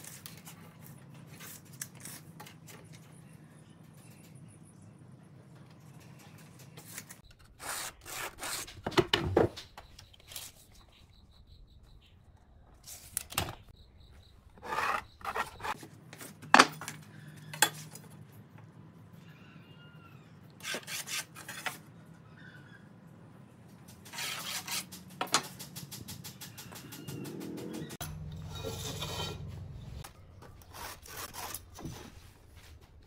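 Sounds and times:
steel rule scraping on boards: 14.6 - 15.8, 20.6 - 21.8, 24.1 - 25.0, 28.5 - 29.5.

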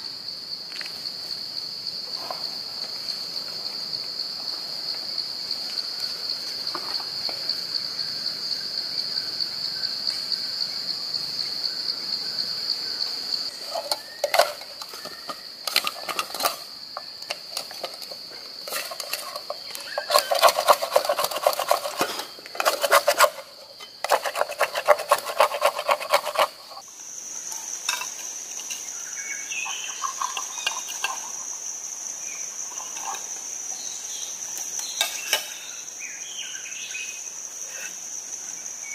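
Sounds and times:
insects droning: 0.0 - 38.9
spoon stirring in steel cup: 18.6 - 22.0, 22.6 - 23.4, 24.0 - 26.8, 29.7 - 31.2.

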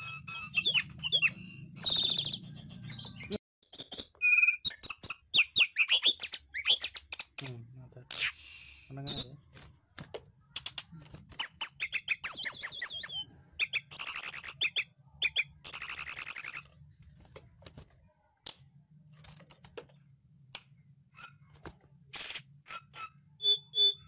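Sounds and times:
bird singing whistled notes: 0.0 - 7.2, 11.6 - 16.6, 22.7 - 24.0.

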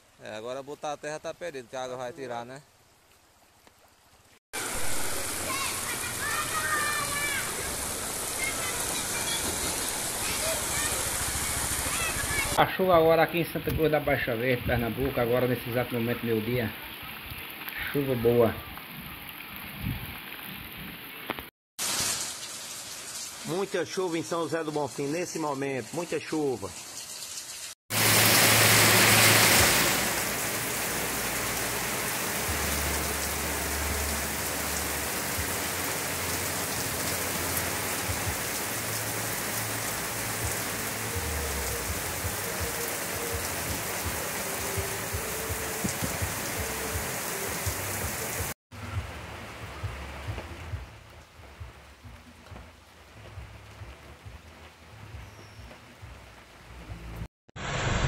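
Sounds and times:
heavy rain on a wet road: 4.6 - 12.6, 27.9 - 55.0.

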